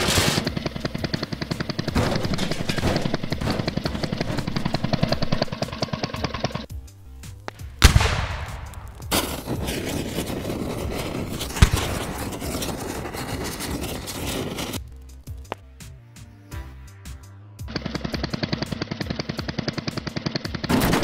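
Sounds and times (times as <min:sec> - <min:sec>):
background music: 0:00.0 - 0:21.0
fire crackling: 0:06.6 - 0:15.8.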